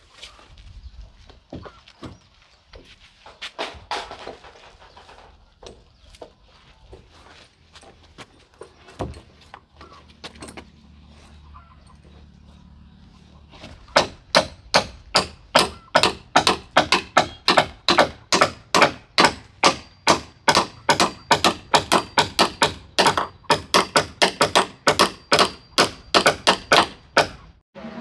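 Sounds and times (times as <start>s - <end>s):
rapid sharp ringing knocks: 14.0s - 27.4s.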